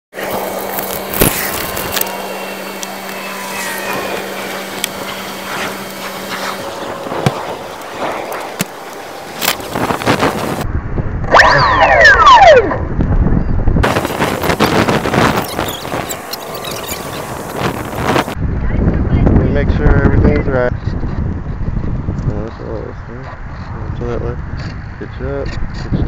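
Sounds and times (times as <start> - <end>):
whine falling in pitch: 0.2 - 13.0, 13.8 - 18.4
wind on microphone: 0.2 - 26.0.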